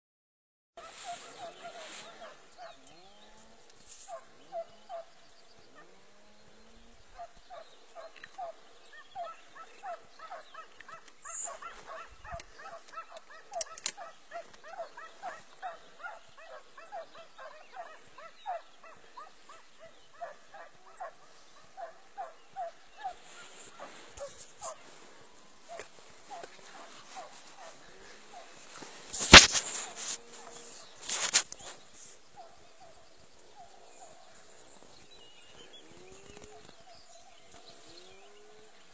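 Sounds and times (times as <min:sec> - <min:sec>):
hunting dogs yelping: 0:00.8 - 0:03.0, 0:04.1 - 0:06.1, 0:07.1 - 0:34.4
sharp click: 0:29.2 - 0:29.8.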